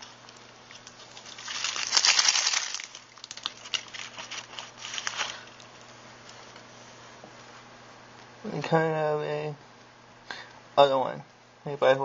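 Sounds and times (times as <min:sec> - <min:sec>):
plastic wrapping crinkling: 0:00.0 - 0:06.6.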